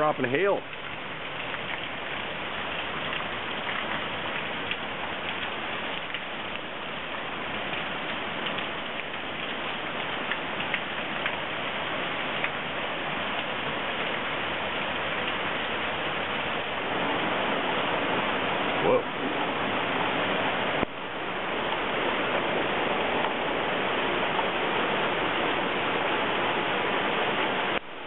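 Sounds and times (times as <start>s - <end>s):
hail on a wooden deck: 0.0s - 19.9s
water pouring off a gutter: 0.0s - 28.0s.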